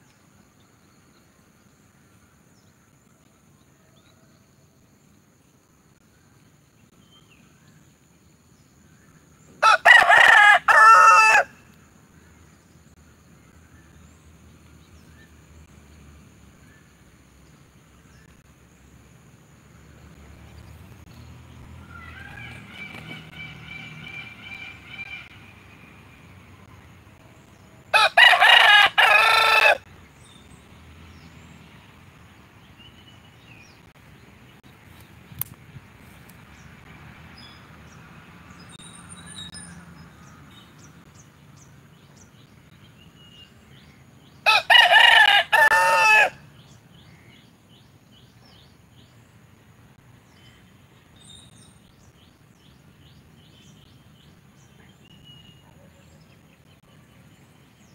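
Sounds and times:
rooster crowing: 9.6 - 11.6, 27.9 - 29.9, 44.4 - 46.4.

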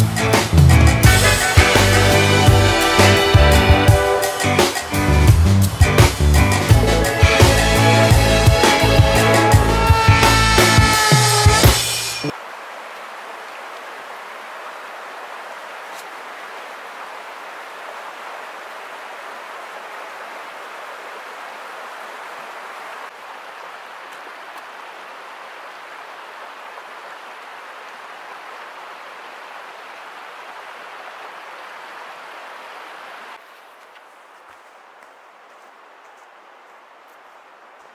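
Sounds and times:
creek water over rocks: 10.9 - 37.9.

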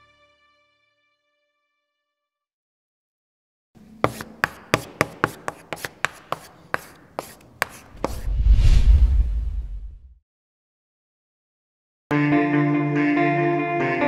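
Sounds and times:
chalk tapping on blackboard: 4.0 - 8.2
deep rumble: 8.2 - 10.2.

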